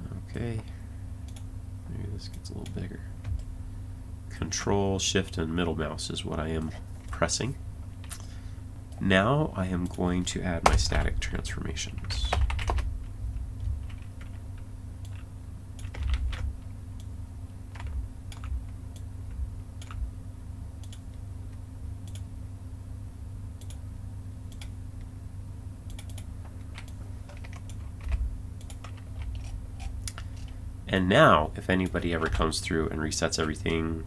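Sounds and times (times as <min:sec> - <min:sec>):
low steady hum: 0:00.0 - 0:34.0
computer keyboard keys clicking: 0:12.0 - 0:12.9, 0:13.8 - 0:17.1, 0:17.7 - 0:19.1, 0:19.8 - 0:20.0, 0:25.9 - 0:29.5.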